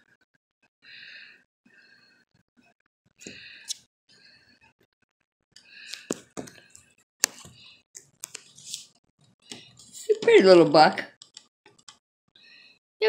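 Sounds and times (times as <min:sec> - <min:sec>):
faint breathing: 0:00.8 - 0:02.2, 0:05.6 - 0:07.8, 0:12.4 - 0:12.8.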